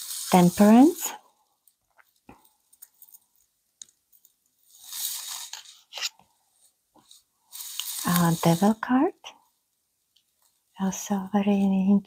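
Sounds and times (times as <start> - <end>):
card sliding with papery swish: 4.8 - 6.1, 7.5 - 8.7.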